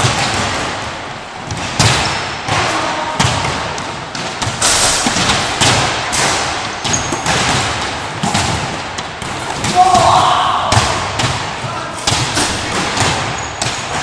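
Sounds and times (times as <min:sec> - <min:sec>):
basketballs bouncing on wooden floor: 0:00.0 - 0:14.0.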